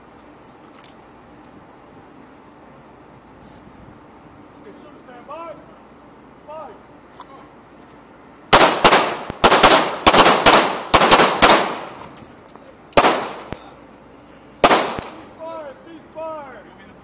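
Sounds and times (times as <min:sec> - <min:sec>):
pistol shots: 0:08.5 - 0:12.0, 0:13.0 - 0:13.6, 0:14.6 - 0:15.2.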